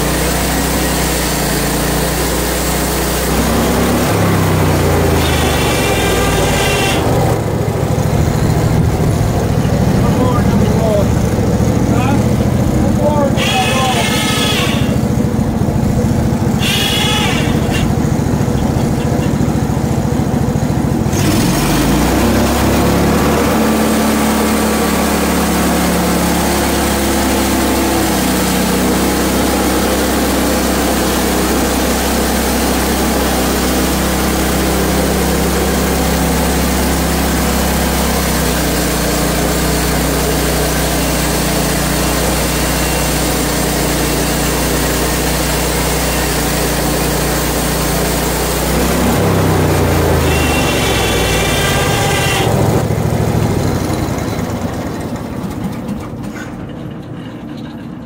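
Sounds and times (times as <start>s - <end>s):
band blade cutting log: 0.0s - 7.4s, 13.3s - 15.0s, 16.6s - 18.0s, 38.4s - 52.6s
sawmill engine running: 0.0s - 58.0s.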